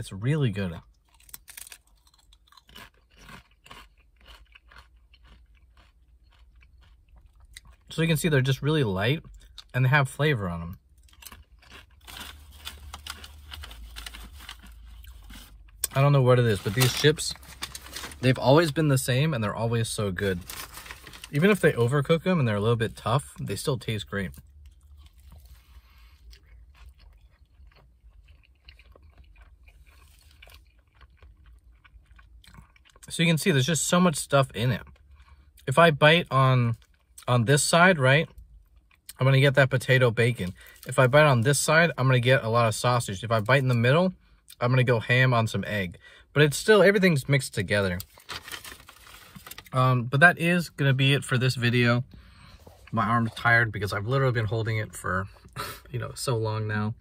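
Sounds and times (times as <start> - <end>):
chewing crisp tortilla chips: 0.6 - 44.7, 47.5 - 49.9
person chewing food: 0.8 - 7.9, 10.8 - 16.0, 24.4 - 33.1.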